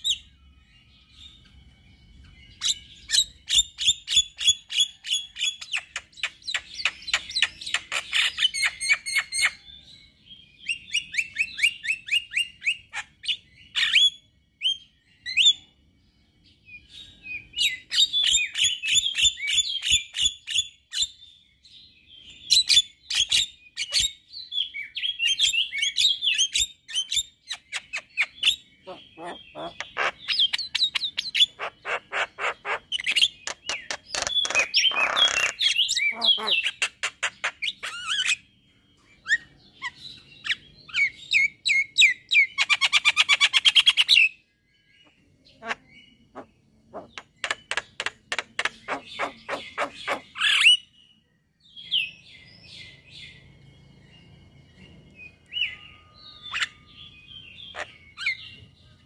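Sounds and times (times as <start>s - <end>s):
bird singing sharp repeated notes: 0.0s - 59.0s
bird whistled chirps: 10.6s - 15.8s, 51.8s - 58.6s.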